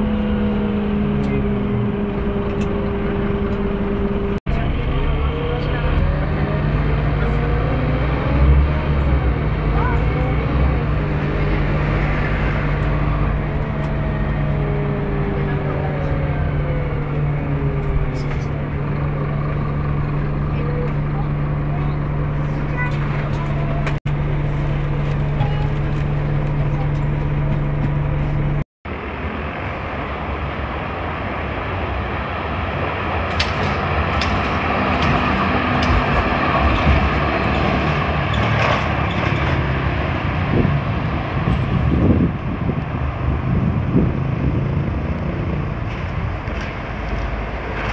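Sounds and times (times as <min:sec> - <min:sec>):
bus engine drone: 0:00.0 - 0:47.9
street traffic: 0:00.0 - 0:47.9
tram on rails: 0:00.0 - 0:47.9
passengers talking: 0:09.1 - 0:11.6, 0:12.9 - 0:24.0, 0:24.7 - 0:28.1.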